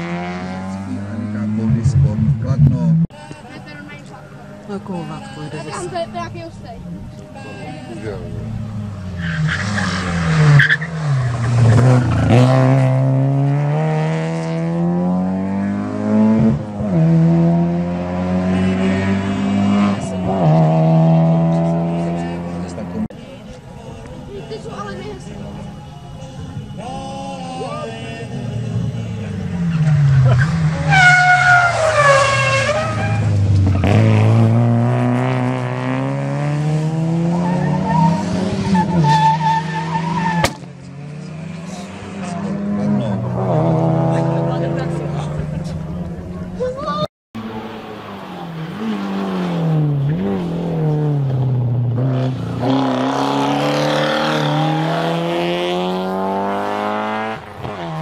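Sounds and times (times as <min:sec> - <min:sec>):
race car engine revving: 0:00.0 - 0:03.6, 0:04.6 - 0:23.1, 0:27.6 - 0:58.0
tyres squealing: 0:29.6 - 0:34.0, 0:37.3 - 0:40.6.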